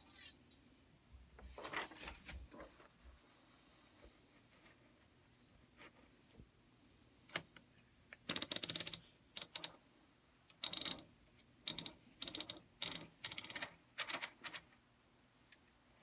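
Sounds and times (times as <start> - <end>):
manual typewriter typing: 8.2 - 9.8, 10.5 - 14.7.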